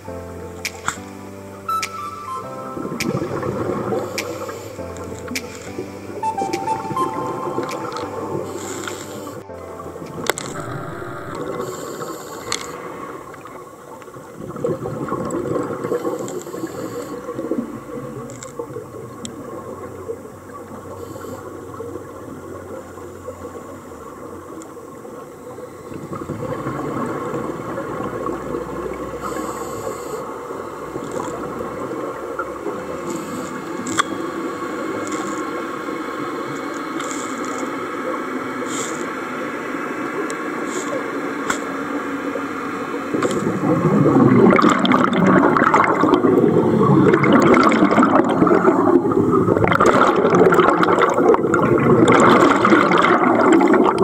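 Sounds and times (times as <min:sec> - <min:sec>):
scuba regulator breathing: 0:03.9 - 0:06.0, 0:08.4 - 0:09.5, 0:11.3 - 0:13.2, 0:15.9 - 0:17.4, 0:29.2 - 0:31.2, 0:38.6 - 0:39.3
rumbling exhaust bubbles: 0:43.2 - 0:54.0.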